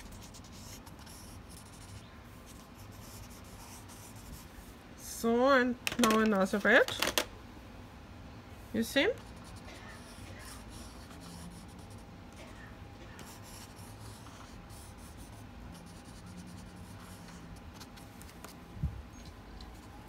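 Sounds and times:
crayon scratching on paper: 0:00.0 - 0:04.5, 0:09.2 - 0:12.0, 0:13.1 - 0:18.1.

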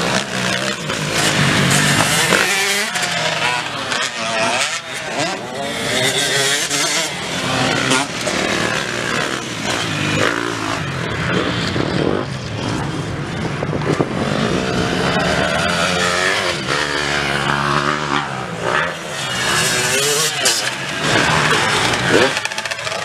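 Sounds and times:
dirt bike engines revving: 0:00.0 - 0:23.0.

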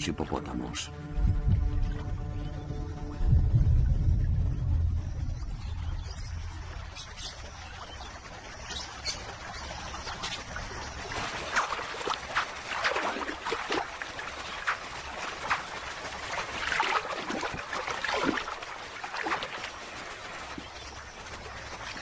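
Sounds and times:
water splashing and trickling: 0:00.0 - 0:22.0.

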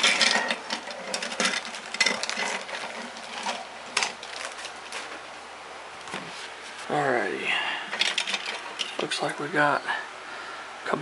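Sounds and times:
plastic parts clicking and clattering: 0:00.0 - 0:05.2, 0:07.9 - 0:09.1
plastic bag crinkling: 0:00.0 - 0:05.3.

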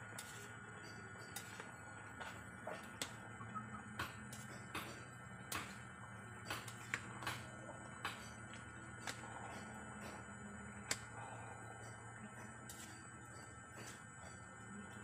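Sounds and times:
metal spoon scraping a pot: 0:00.1 - 0:03.1.

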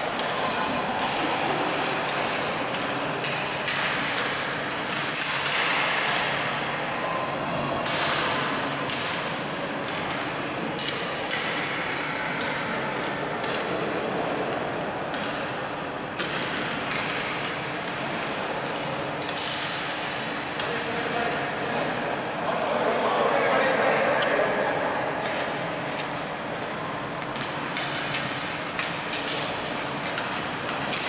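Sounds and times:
steady rink hiss: 0:00.0 - 0:06.5, 0:12.5 - 0:31.0.

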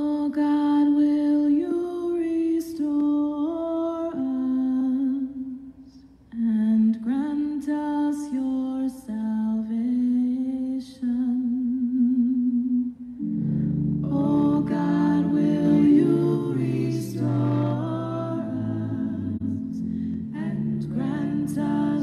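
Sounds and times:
person singing unaccompanied: 0:14.0 - 0:22.0.

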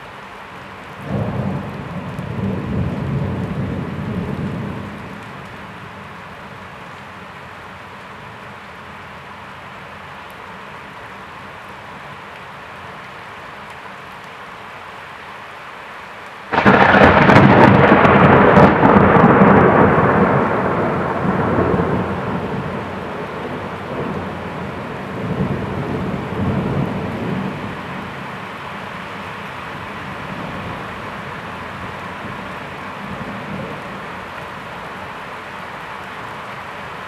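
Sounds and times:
rain hiss: 0:00.0 - 0:37.0
thunder crack and rumble: 0:01.0 - 0:05.6, 0:16.5 - 0:27.8.

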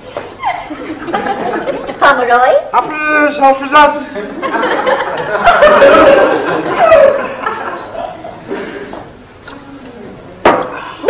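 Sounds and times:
studio audience laughing: 0:00.4 - 0:02.2, 0:04.1 - 0:08.6.

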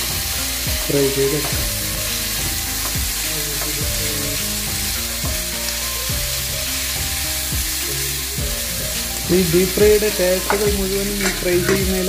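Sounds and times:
meat sizzling in a pan: 0:00.0 - 0:12.0.

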